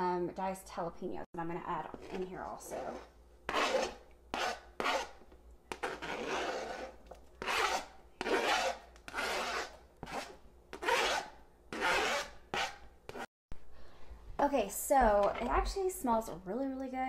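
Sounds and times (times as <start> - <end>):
knife scraping cutting board: 1.9 - 13.3.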